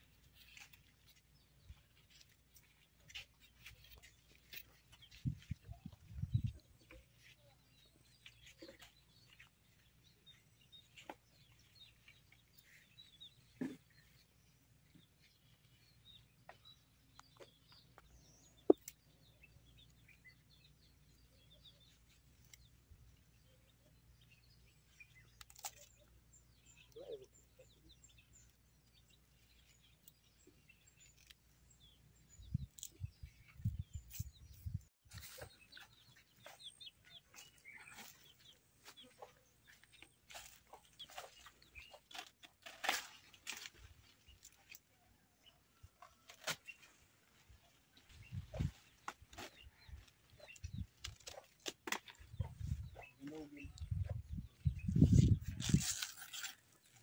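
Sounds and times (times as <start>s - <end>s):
small birds chirping: 0.0s - 57.0s
rustling: 55.4s - 57.0s.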